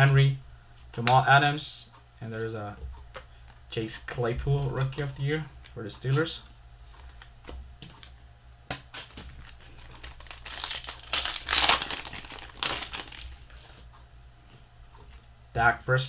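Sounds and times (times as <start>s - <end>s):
wrapper being torn open: 8.9s - 13.8s.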